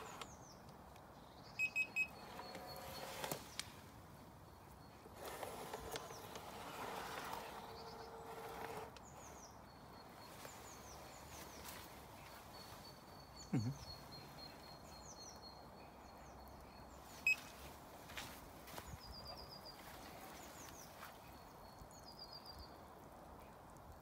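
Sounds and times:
small birds chirping: 0.0 - 24.0
electric motor humming: 5.2 - 9.0.

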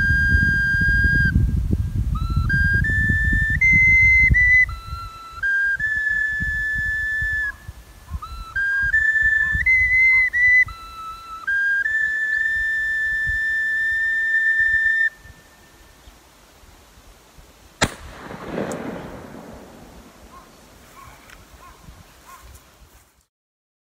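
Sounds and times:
whistle-like melody: 0.0 - 15.8.

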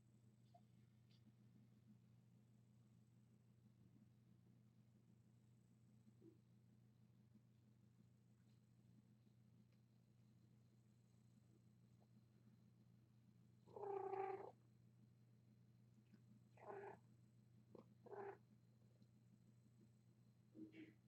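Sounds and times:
faint steady hum: 0.0 - 21.0
cat mewing: 13.7 - 14.6, 16.6 - 17.0, 17.8 - 18.4.

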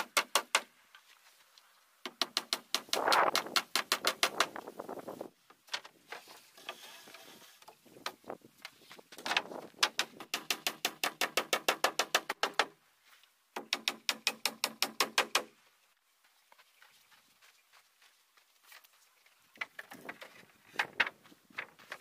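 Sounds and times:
hammer striking nails into wood: 2.0 - 4.5, 9.8 - 12.7, 13.6 - 15.5.

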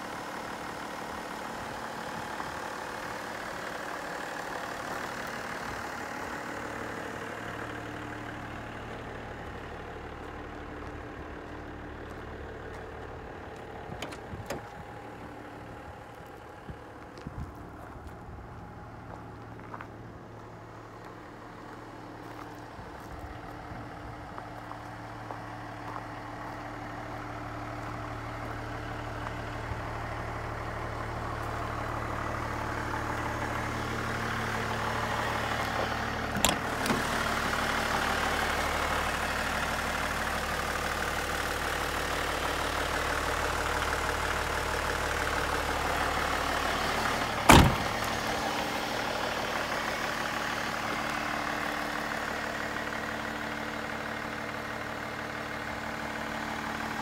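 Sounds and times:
diesel engine idling: 0.0 - 57.0
door slamming: 47.5 - 48.0.

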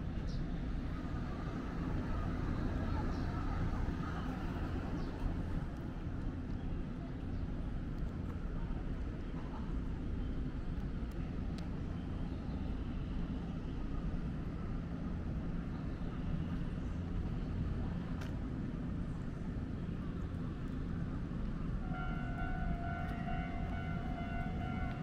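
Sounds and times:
railway station rumble: 0.0 - 25.0
faint click: 10.7 - 11.7.

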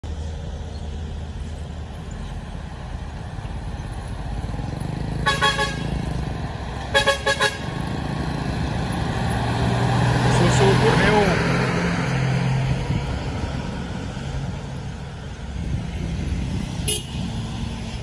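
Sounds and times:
diesel truck engine rumbling: 0.0 - 18.0
vehicle horn toots: 5.2 - 6.0, 6.9 - 7.7, 16.8 - 17.2.

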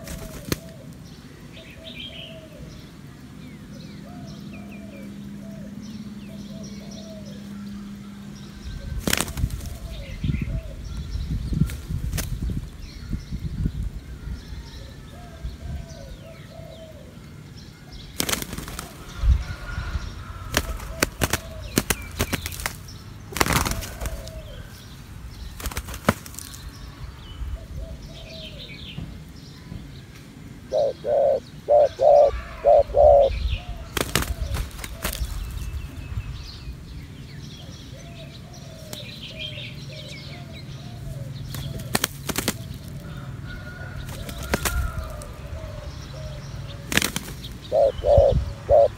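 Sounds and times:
wing flapping: 0.0 - 0.9, 9.0 - 10.0, 11.6 - 12.6, 18.2 - 19.2, 20.4 - 24.8, 25.4 - 26.7, 33.9 - 35.8, 41.5 - 43.0, 44.0 - 45.3, 46.8 - 48.9
doves cooing: 0.0 - 12.2, 14.4 - 26.5, 27.6 - 29.0, 30.6 - 35.8, 37.5 - 48.9.

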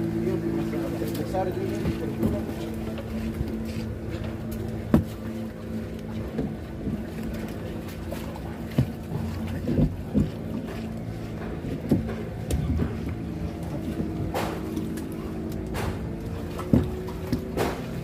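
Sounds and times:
boat engine idling: 0.0 - 18.0
knocks in wooden boat: 4.8 - 5.3, 8.7 - 13.2, 13.9 - 18.0.

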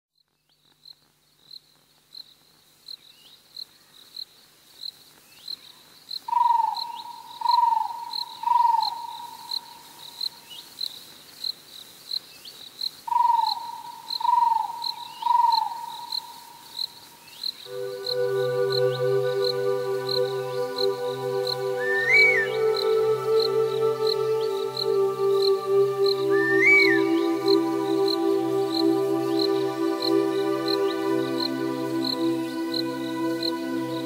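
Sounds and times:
crickets chirping: 1.0 - 34.0
short falling calls: 17.7 - 34.0.

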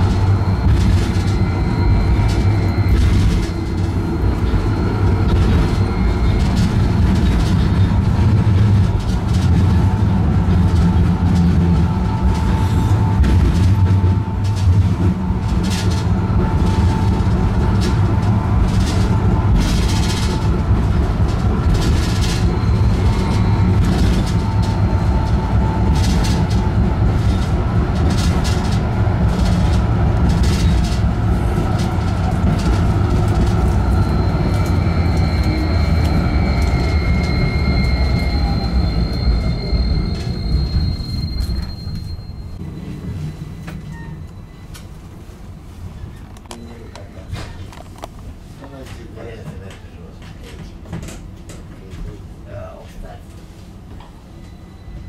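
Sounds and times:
high wheel squeal: 0.0 - 8.1, 21.9 - 26.6, 33.3 - 44.9, 54.3 - 55.0
tram rumbling on rails: 0.0 - 55.0.

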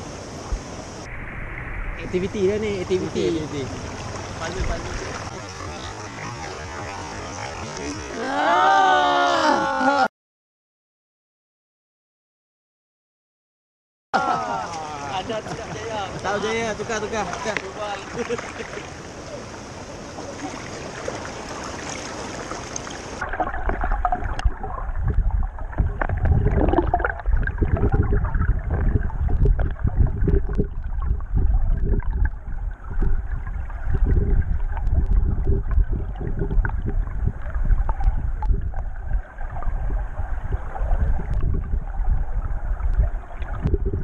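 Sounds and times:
wind buffeting microphone: 23.2 - 44.0.

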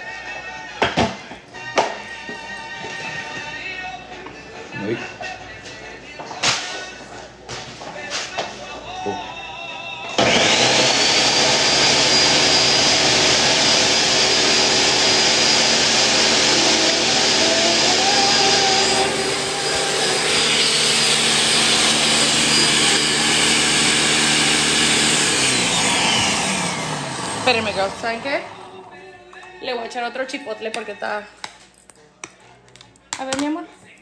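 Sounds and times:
electric blender whining: 10.2 - 28.8.

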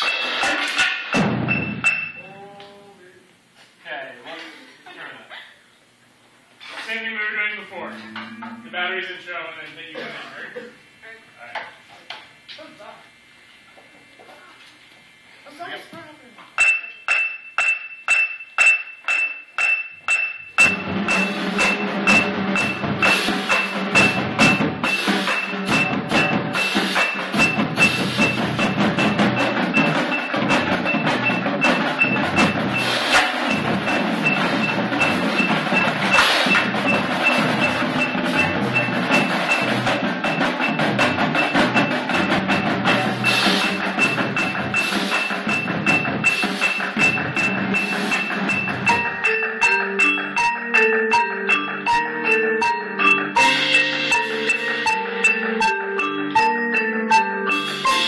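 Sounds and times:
marching drumline playing: 0.0 - 2.5, 16.6 - 49.8
mallet percussion: 0.0 - 2.8, 8.0 - 8.9, 16.6 - 58.0
metronome beep: 1.2 - 2.5, 8.0 - 9.0, 16.6 - 58.0.

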